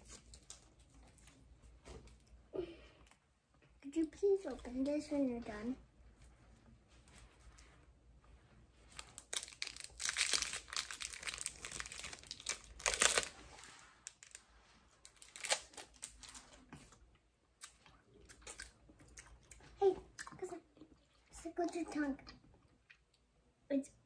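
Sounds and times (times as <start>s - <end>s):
plastic wrappers crinkling: 0.0s - 1.4s, 8.9s - 16.7s.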